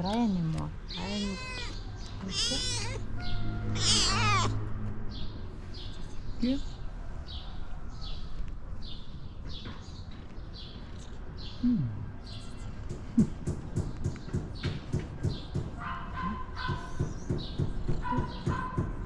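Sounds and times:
cat whining cries and meows: 0:00.9 - 0:04.6.

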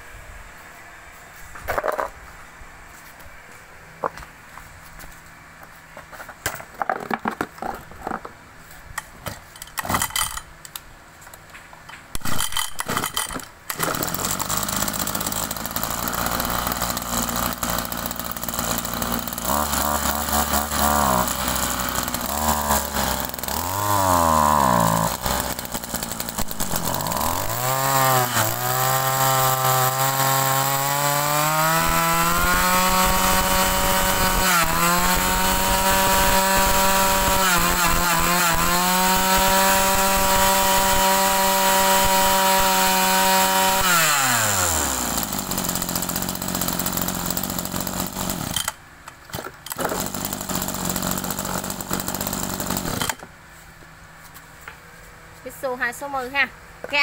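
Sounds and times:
scattered clicks and knocks: 0:09.2 - 0:14.1
brush cutter engine revving: 0:12.2 - 0:53.2.

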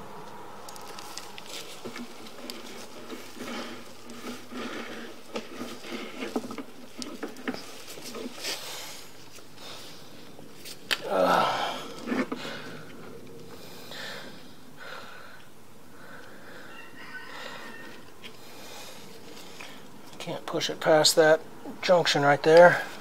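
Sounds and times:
equipment low hum: 0:00.0 - 0:16.7.

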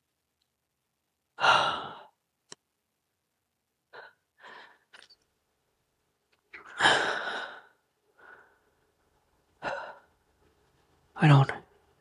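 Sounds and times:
soft breaths: 0:03.9 - 0:05.2, 0:06.5 - 0:11.0
person breathing out heavily: 0:06.7 - 0:08.6.

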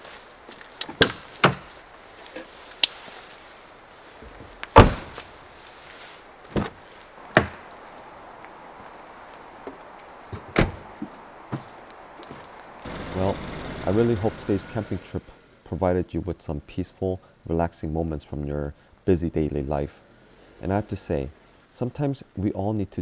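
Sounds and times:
rain hissing: 0:00.0 - 0:00.9, 0:01.7 - 0:15.6
car doors shutting: 0:04.7 - 0:05.3, 0:10.3 - 0:10.9.

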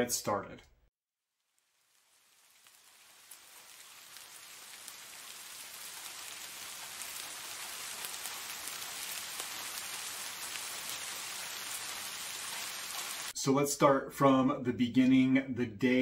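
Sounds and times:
steady rainfall: 0:01.6 - 0:13.4.

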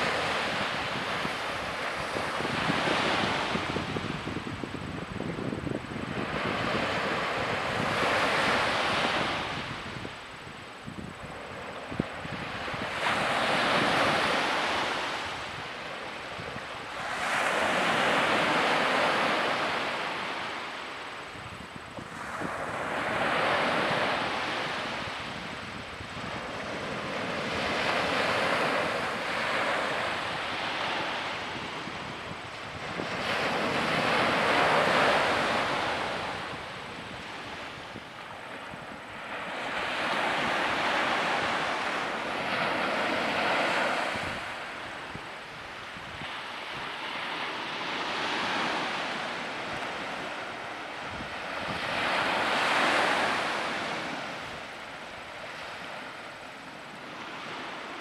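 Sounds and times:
small waves breaking on beach: 0:00.0 - 0:58.0.

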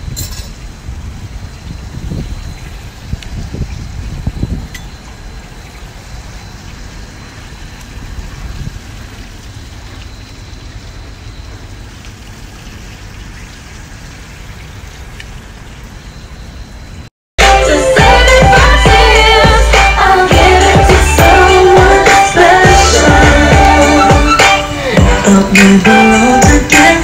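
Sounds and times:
even hiss: 0:17.4 - 0:27.0.

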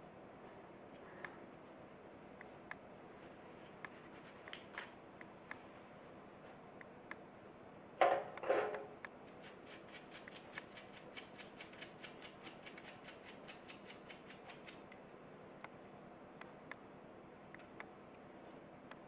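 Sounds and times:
toothbrush scrubbing metal: 0:09.2 - 0:14.8.

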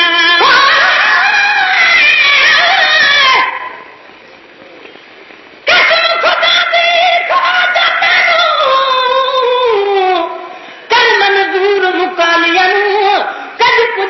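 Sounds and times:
high voice singing devotional poem: 0:00.0 - 0:03.8, 0:05.7 - 0:14.0.

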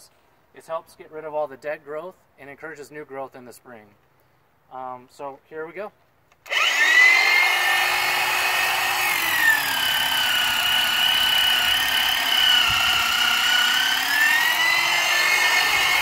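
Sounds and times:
hedge trimmer motor whine: 0:06.4 - 0:16.0.

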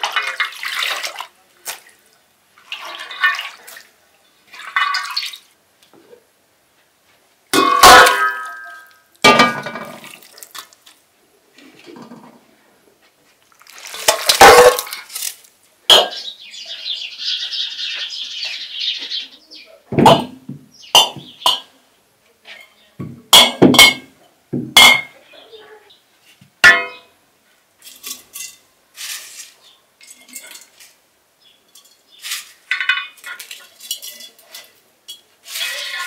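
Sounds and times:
water sloshing and pouring: 0:00.0 - 0:05.5, 0:09.8 - 0:10.8, 0:13.5 - 0:15.2
enamel basins clanking: 0:07.6 - 0:10.2, 0:13.6 - 0:16.3, 0:23.0 - 0:25.2, 0:31.6 - 0:36.0
glass jars clinking: 0:31.7 - 0:35.3.

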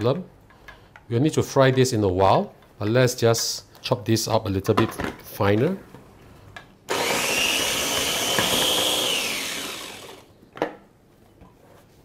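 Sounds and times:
food chopper motor whine: 0:06.9 - 0:10.3.

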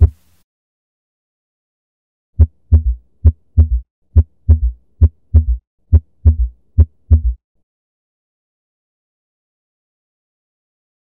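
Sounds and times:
galloping heartbeat: 0:02.4 - 0:07.4.

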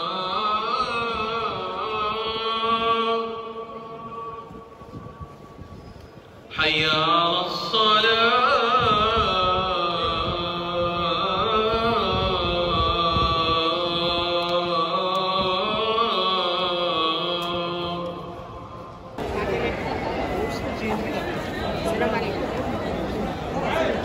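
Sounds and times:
man chanting prayer over loudspeakers: 0:00.0 - 0:05.0, 0:06.5 - 0:19.0.

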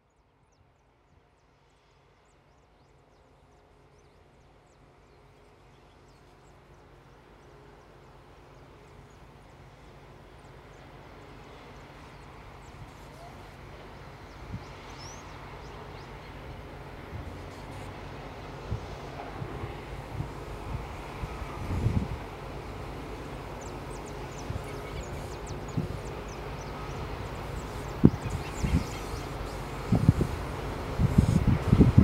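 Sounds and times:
diesel locomotive approaching: 0:01.4 - 0:32.0.

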